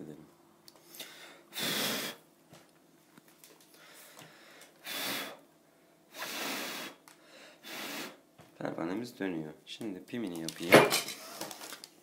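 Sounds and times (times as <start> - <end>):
puffs of breath: 0.8 - 2.2, 3.7 - 5.4, 6.1 - 8.2.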